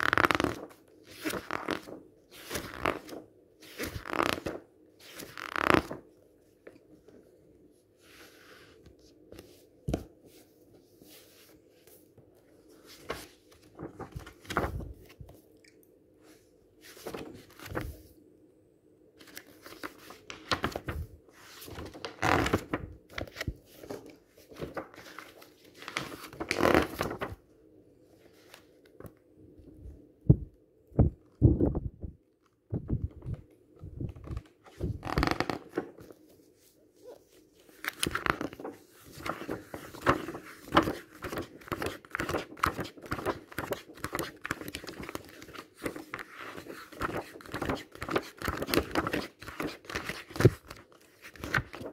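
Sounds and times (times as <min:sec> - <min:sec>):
paper rustling and sliding: 0:08.0 - 0:15.4, 0:16.3 - 0:18.1, 0:19.2 - 0:27.4, 0:34.1 - 0:51.9.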